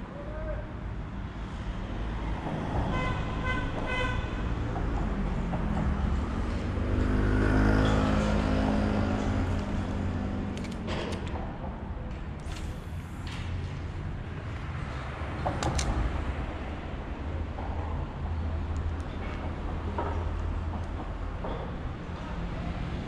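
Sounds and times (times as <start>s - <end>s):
steady traffic noise: 0.0s - 23.0s
vehicle passing with low rumble: 4.8s - 10.6s.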